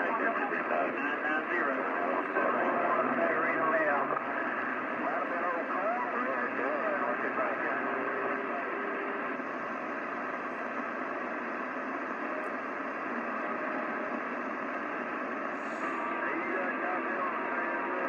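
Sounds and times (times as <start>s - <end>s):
radio static hiss: 0.0s - 18.0s.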